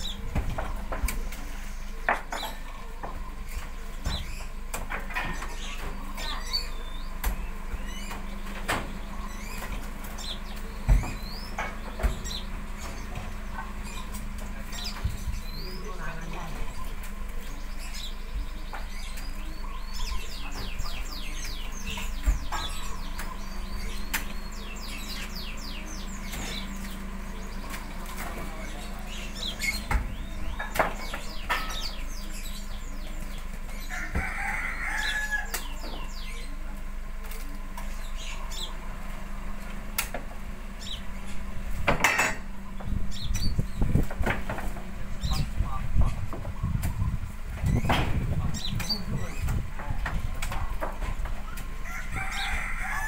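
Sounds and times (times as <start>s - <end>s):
fruit bunches knocking as they land: 0.0s - 6.5s
birds chirping: 0.0s - 53.0s
steady low hum: 0.0s - 53.0s.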